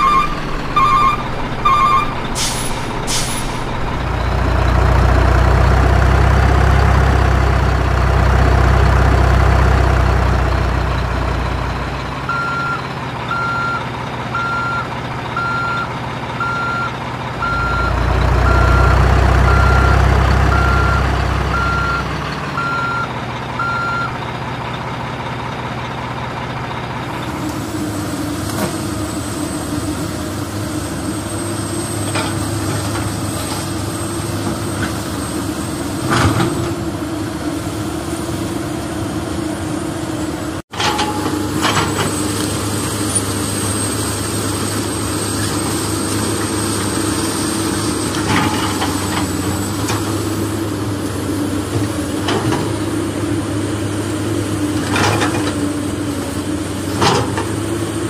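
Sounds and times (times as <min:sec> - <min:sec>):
reversing alarm beeping: 0:00.0 - 0:02.8, 0:12.2 - 0:24.2
heavy truck engine: 0:00.0 - 0:58.0.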